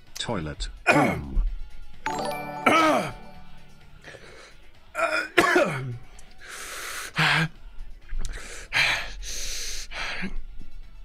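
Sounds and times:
man crying out: 2.6s - 3.3s.

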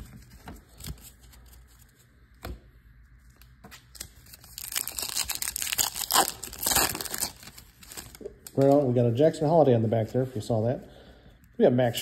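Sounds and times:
wrapper crinkling and tearing: 3.9s - 9.1s.

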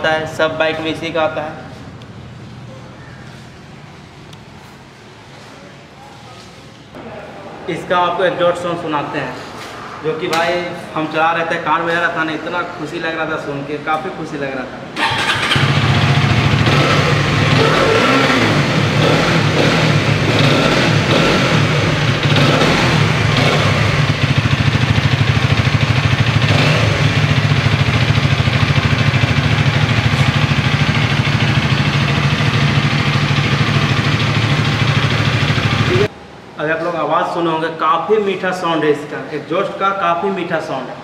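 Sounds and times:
motorcycle engine revving and idling: 15.0s - 36.1s.

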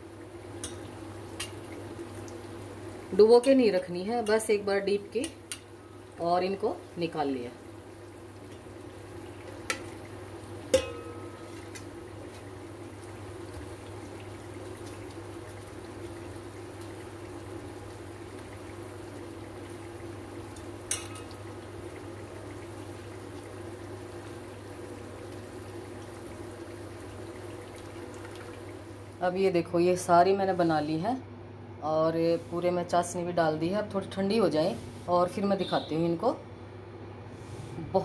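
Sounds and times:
steady background hum: 0.0s - 38.0s
tongs clinking against steel pot: 10.7s - 11.5s, 20.9s - 21.4s.

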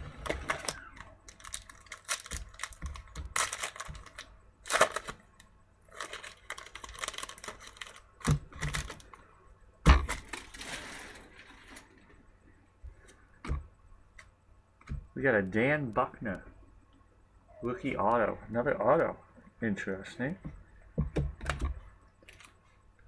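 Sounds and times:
crinkling: 0.0s - 15.2s, 21.4s - 23.0s.

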